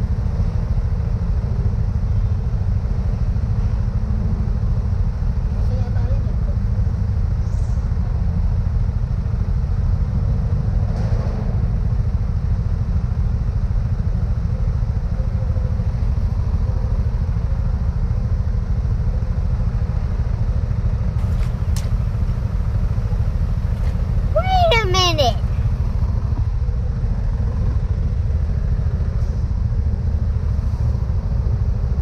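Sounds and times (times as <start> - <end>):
surrounding traffic: 0.0 - 32.0
motorcycle engine rumble: 11.8 - 32.0.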